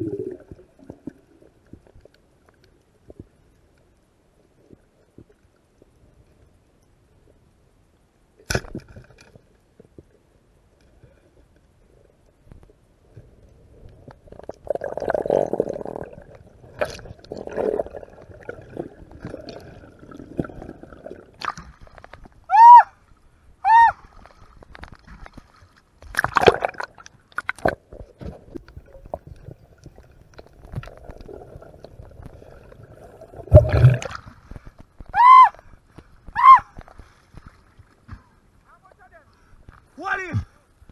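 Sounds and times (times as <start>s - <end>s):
water gurgling and sloshing: 0.0s - 7.6s, 8.5s - 22.5s, 23.1s - 38.7s
loud short squeals: 35.2s - 35.6s, 36.4s - 36.7s.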